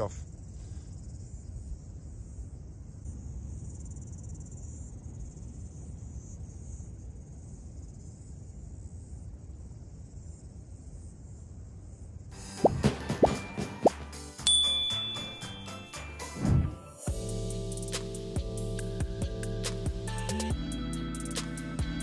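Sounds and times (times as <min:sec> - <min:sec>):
insects chirring: 0:00.0 - 0:12.4.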